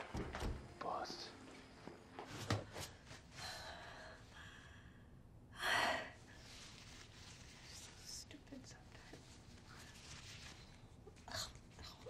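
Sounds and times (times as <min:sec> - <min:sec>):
woman breathing: 0:02.5 - 0:06.7.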